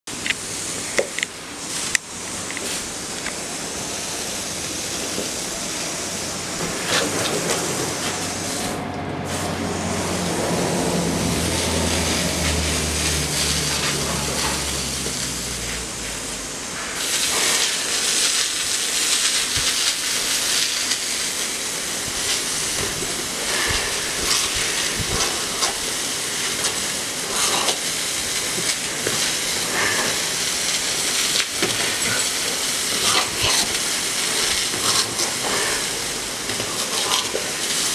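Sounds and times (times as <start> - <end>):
garden hose spraying water: 0.1 - 37.9
low engine hum: 3.4 - 17.0.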